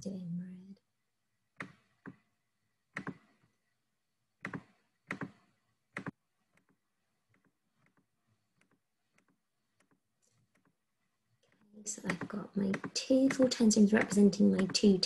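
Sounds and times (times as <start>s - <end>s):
computer mouse clicking: 2.9s - 3.4s, 4.4s - 10.8s, 11.4s - 15.0s.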